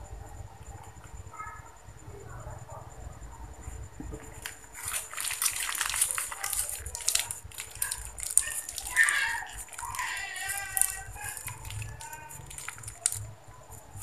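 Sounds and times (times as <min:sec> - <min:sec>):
plastic bag crinkling: 0:04.1 - 0:14.0
person speaking: 0:04.7 - 0:14.0.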